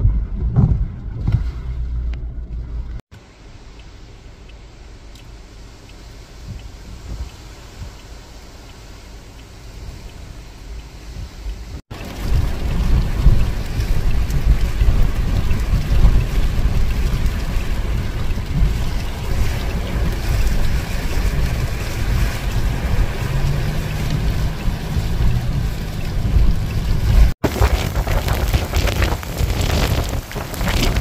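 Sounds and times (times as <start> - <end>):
wind buffeting microphone: 9.7 - 31.0.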